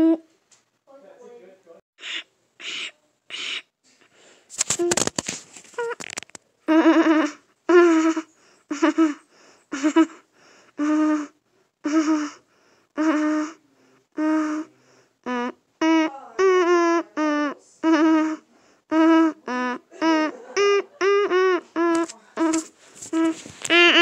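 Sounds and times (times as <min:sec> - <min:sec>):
crackly noise burst: 0:04.5 - 0:06.5, 0:21.8 - 0:24.0
person making held vocal sounds: 0:14.2 - 0:24.0.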